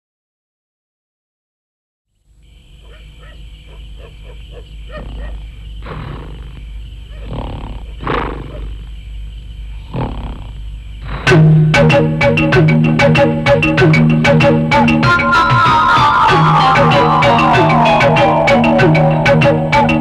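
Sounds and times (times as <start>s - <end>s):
man snoring: 7.2s - 8.7s, 9.8s - 11.3s.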